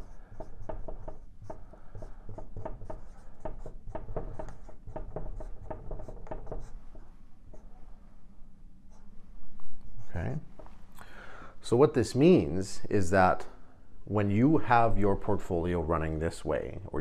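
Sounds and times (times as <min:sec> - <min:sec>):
marker writing on a whiteboard: 0:00.0 - 0:07.8, 0:09.8 - 0:10.7.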